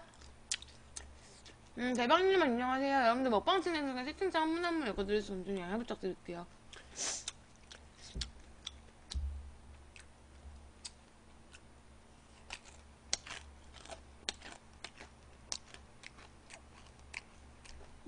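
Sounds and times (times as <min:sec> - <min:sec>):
low steady hum: 0:00.0 - 0:18.0
person chewing crunchy food: 0:00.1 - 0:01.6, 0:06.7 - 0:09.3, 0:09.9 - 0:18.0.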